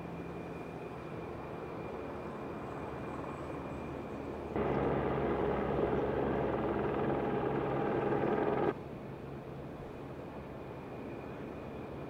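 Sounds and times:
quieter steady rumble: 4.6 - 8.8.

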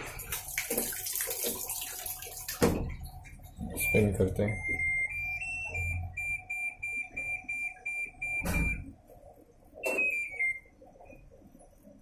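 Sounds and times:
washing machine buzzer beeping: 3.7 - 9.0, 9.8 - 11.3.

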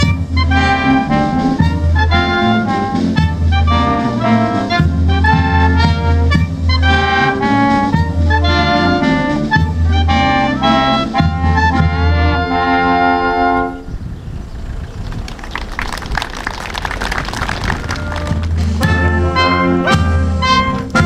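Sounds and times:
wind band playing: 0.0 - 21.0.

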